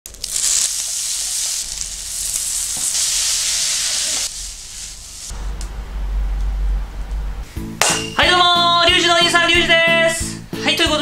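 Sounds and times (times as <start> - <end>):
noodles sizzling in a frying pan: 0.0 - 5.4.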